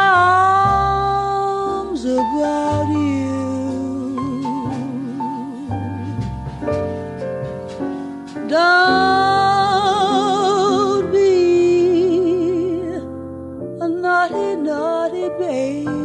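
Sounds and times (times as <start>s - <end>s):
person singing with vibrato: 0.0s - 6.2s, 8.4s - 13.1s
instrumental accompaniment: 0.0s - 16.0s.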